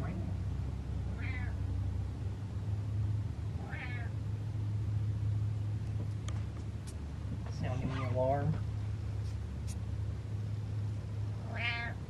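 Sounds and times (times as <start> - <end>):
steady low hum: 0.0 - 12.0
cat meowing: 1.1 - 1.6, 3.6 - 4.2, 11.4 - 12.0.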